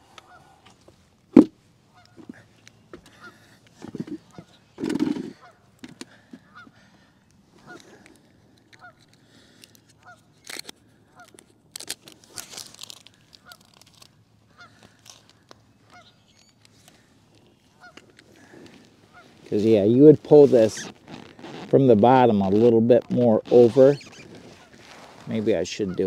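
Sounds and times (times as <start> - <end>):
clicks and tarp rustling: 3.0 - 6.2, 11.7 - 14.1, 14.7 - 25.5
geese honking: 3.1 - 3.5, 8.8 - 9.1, 15.8 - 16.2, 17.7 - 19.9, 25.8 - 26.0.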